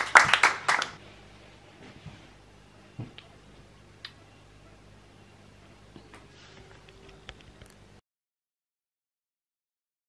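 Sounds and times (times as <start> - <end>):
faint room hum: 0.0 - 8.0.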